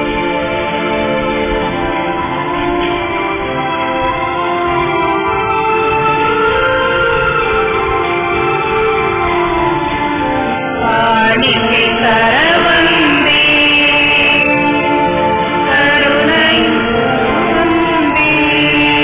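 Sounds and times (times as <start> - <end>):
organ chords: 0.0 - 19.0
people singing a hymn: 10.8 - 19.0.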